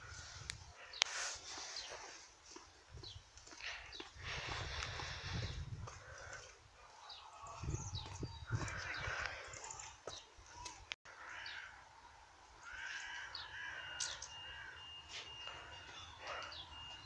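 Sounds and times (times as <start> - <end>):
birds chirping and calling: 3.0 - 11.8, 12.6 - 17.0.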